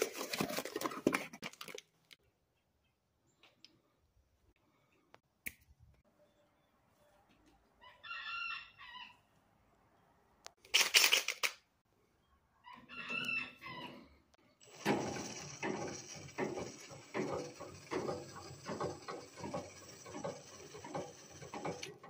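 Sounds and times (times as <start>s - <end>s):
rooster crowing: 7.8s - 9.2s, 12.8s - 13.9s.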